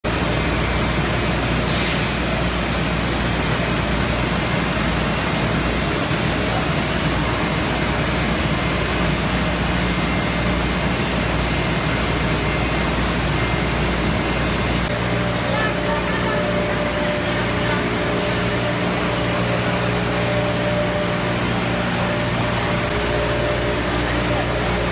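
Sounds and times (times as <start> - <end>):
packing machinery running: 0.1 - 24.9.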